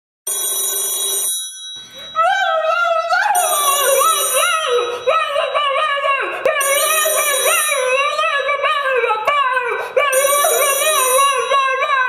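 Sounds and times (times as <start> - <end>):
telephone bell ringing: 0.3 - 2.6, 3.3 - 5.5, 6.6 - 8.2, 10.1 - 11.9
high voice singing: 2.2 - 12.0.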